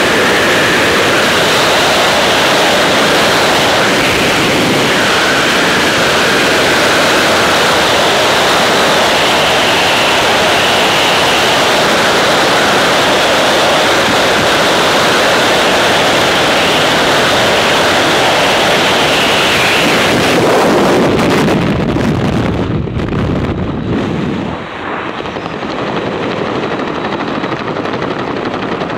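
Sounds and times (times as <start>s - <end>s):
freefall wind rushing: 0.0s - 28.9s
parachute fluttering: 23.5s - 28.4s.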